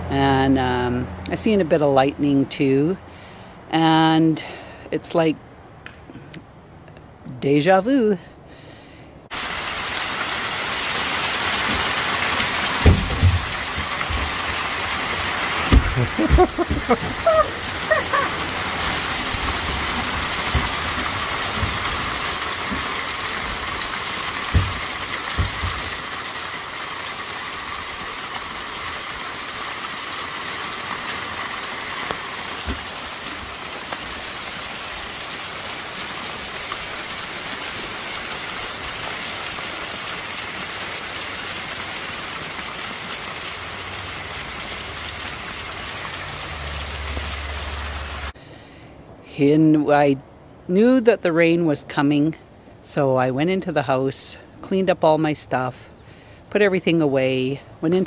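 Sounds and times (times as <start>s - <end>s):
steady rain falling: 9.3s - 48.4s
knocks and thumps: 12.8s - 14.6s, 15.7s - 17.2s, 19.4s - 23.6s, 24.4s - 26.0s.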